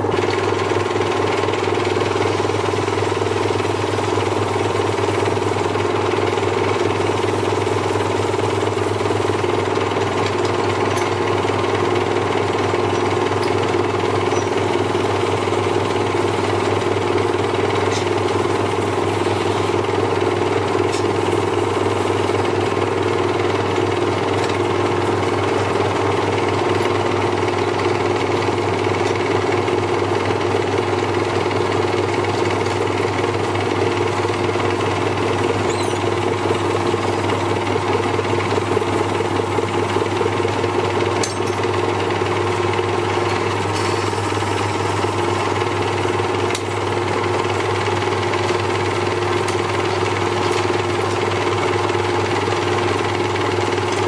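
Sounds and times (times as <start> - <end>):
lathe rattling hum: 0.0 - 54.0.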